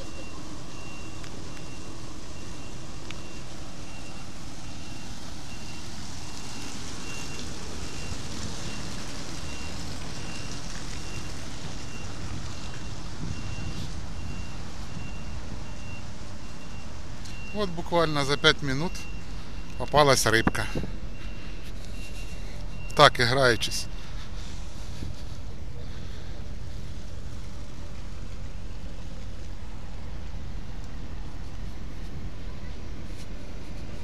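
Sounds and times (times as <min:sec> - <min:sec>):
faint high electronic beeps: 0:00.0 - 0:05.8.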